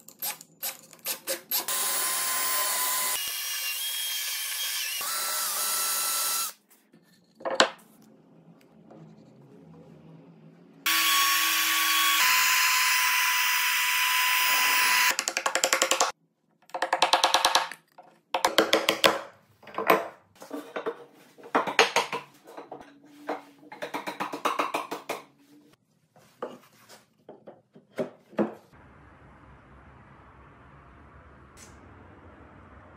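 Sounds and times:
power tool whining: 10.8s - 15.1s
chisel and hammer knocking: 15.1s - 17.8s, 18.4s - 20.1s, 21.5s - 22.8s, 23.7s - 25.3s.

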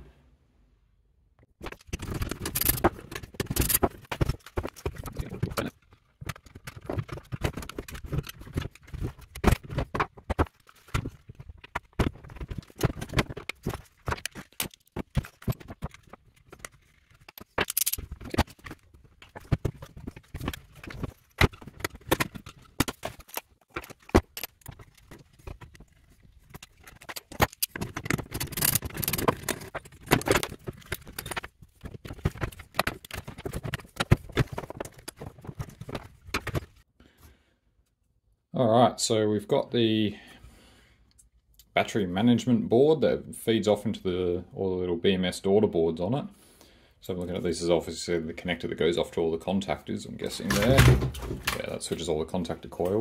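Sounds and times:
plastic and metal parts clattering: 1.6s - 36.9s, 50.1s - 53.0s.

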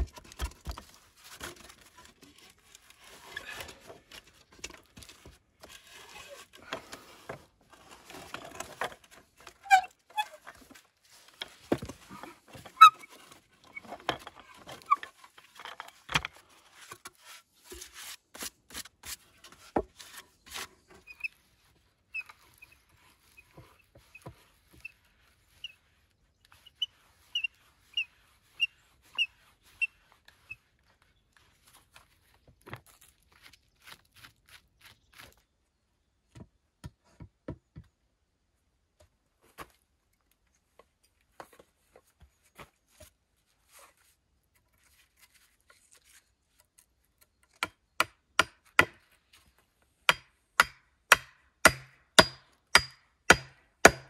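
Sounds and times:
axe head pounding wooden post: 47.6s - 49.0s, 50.1s - 54.0s.

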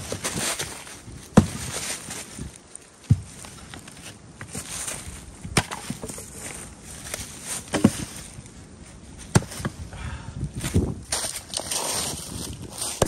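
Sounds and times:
axe chopping firewood: 1.3s - 1.7s, 5.4s - 6.2s, 9.3s - 9.7s.

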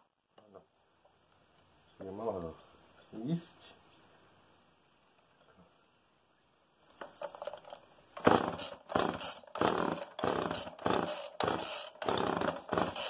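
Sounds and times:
chainsaw engine cranking and sputtering: 7.0s - 13.0s.

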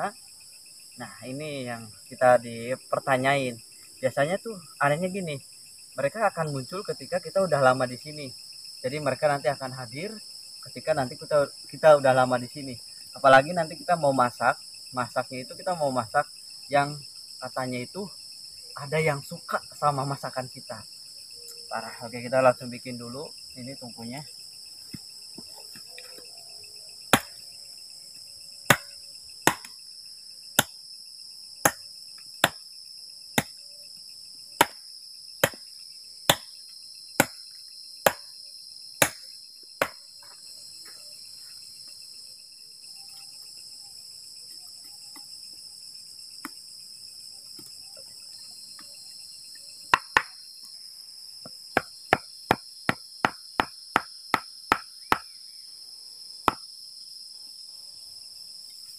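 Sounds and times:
crickets and insects trilling: 0.0s - 58.9s
machete chopping wooden plank: 27.1s - 27.4s, 28.7s - 29.8s, 30.6s - 30.8s, 31.6s - 32.6s, 33.4s - 33.6s, 34.6s - 34.8s, 35.4s - 35.7s, 36.3s - 36.5s, 37.2s - 37.4s, 38.0s - 38.3s, 39.0s - 39.2s, 39.8s - 40.0s, 49.9s - 50.4s, 51.8s - 55.3s, 56.4s - 56.7s
wood block pounding wooden stake: 27.1s - 27.4s, 28.7s - 29.8s, 30.6s - 30.8s, 31.6s - 32.6s, 33.4s - 33.6s, 34.6s - 34.8s, 35.4s - 35.7s, 36.3s - 36.5s, 37.2s - 37.4s, 38.0s - 38.3s, 39.0s - 39.2s, 39.8s - 40.4s, 49.9s - 50.4s, 51.7s - 55.3s, 56.4s - 56.6s.

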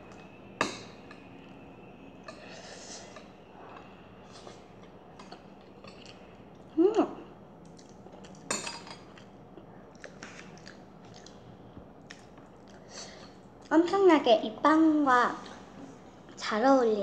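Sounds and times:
chewing crunchy food: 7.6s - 12.8s.

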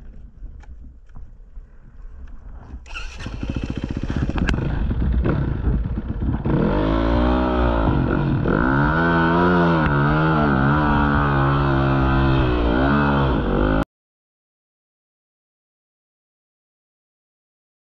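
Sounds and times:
dirt bike engine revving: 2.9s - 13.8s.

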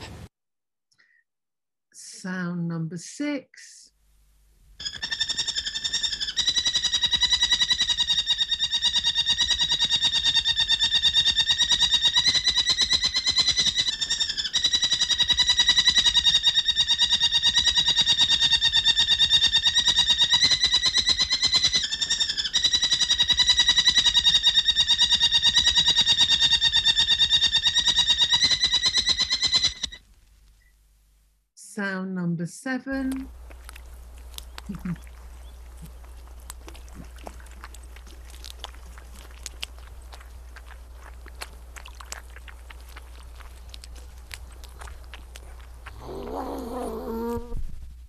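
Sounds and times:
buzzy animal trill: 4.8s - 30.0s, 33.0s - 47.6s.

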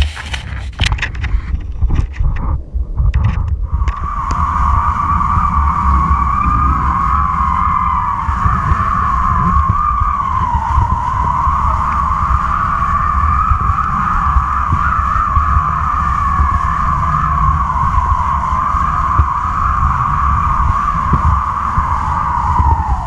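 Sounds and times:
camera scraping on sand: 0.0s - 2.6s
kite line whistling hum: 0.0s - 23.0s
wind buffeting microphone: 0.0s - 23.0s.

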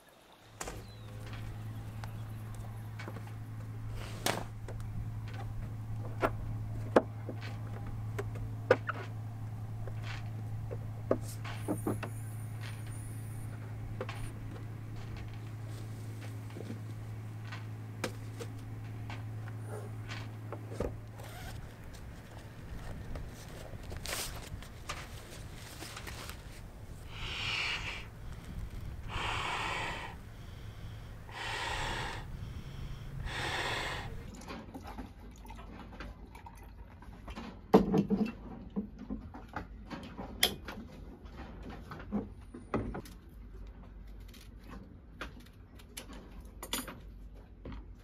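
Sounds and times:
person blowing into inflatable valve: 27.1s - 28.1s, 29.1s - 30.2s, 31.3s - 32.3s, 33.2s - 34.3s.

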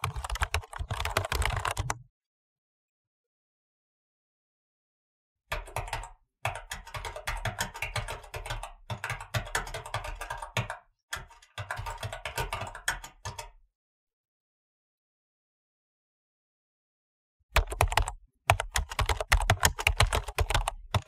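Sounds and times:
mechanical keyboard typing: 0.0s - 2.0s, 5.6s - 13.5s, 17.6s - 21.0s.

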